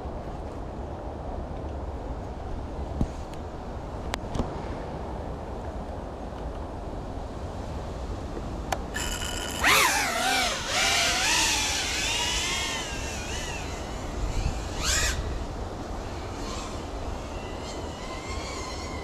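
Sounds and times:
wind rumble on microphone: 0:00.0 - 0:19.0
drone motors whining: 0:09.0 - 0:15.2.

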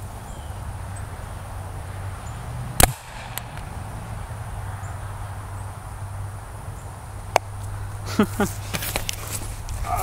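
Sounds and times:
sharp gunshot-like bang: 0:02.8 - 0:03.7.

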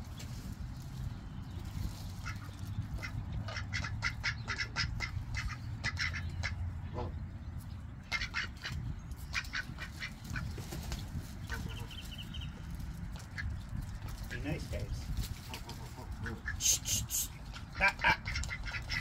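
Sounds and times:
ducks quacking: 0:02.2 - 0:07.2, 0:08.0 - 0:10.7, 0:11.4 - 0:12.1, 0:15.3 - 0:19.0.

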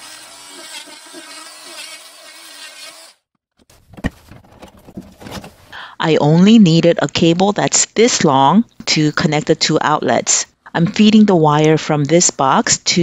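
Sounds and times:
multi-tool buzzing into drywall: 0:00.0 - 0:03.3.

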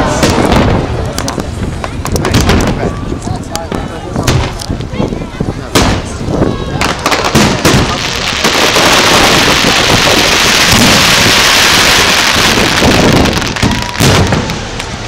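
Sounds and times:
dense crackling of fireworks: 0:00.0 - 0:15.0
firework shells bursting: 0:06.8 - 0:15.0.

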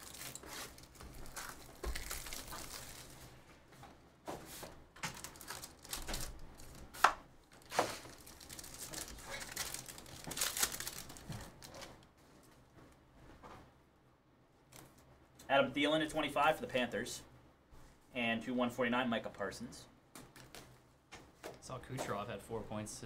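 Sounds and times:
foil pack crinkling: 0:00.0 - 0:03.5, 0:05.0 - 0:12.1.

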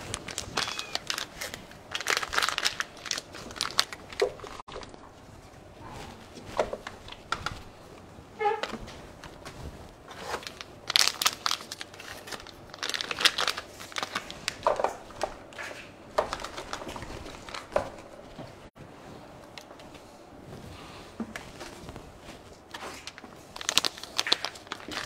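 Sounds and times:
cats chewing and licking food: 0:00.0 - 0:08.1.

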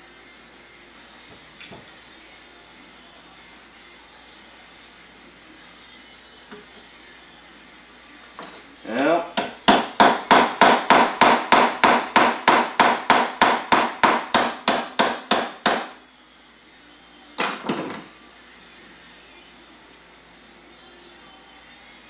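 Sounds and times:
hammer tapping on metal: 0:09.4 - 0:15.9.

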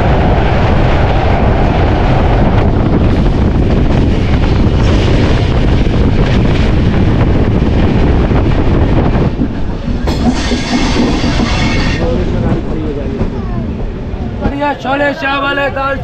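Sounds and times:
train wheels rumbling on track: 0:00.0 - 0:16.0
metallic wheel squeal: 0:10.1 - 0:12.2.

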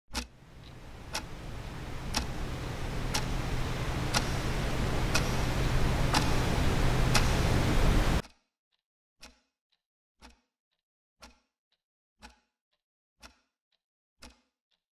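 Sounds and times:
clock ticking: 0:00.1 - 0:08.3
hiss and low hum: 0:00.3 - 0:08.2.

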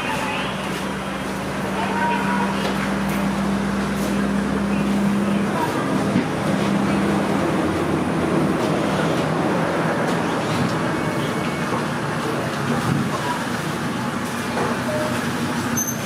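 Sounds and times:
low motor hum: 0:00.0 - 0:13.1
steady rushing background noise: 0:00.0 - 0:15.8.

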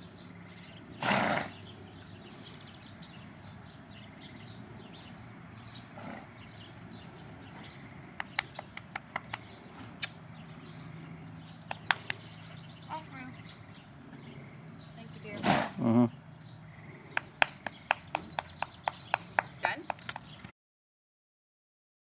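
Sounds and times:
foal snorting: 0:15.4 - 0:16.2.

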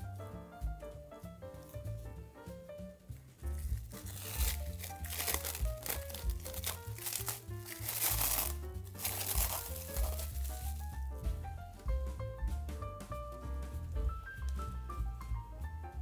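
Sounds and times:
background music: 0:00.0 - 0:16.0
cling film crinkling: 0:03.2 - 0:11.9.

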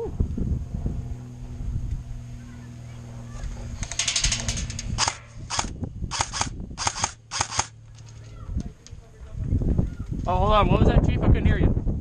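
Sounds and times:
airsoft rifle firing bursts: 0:05.0 - 0:07.7.

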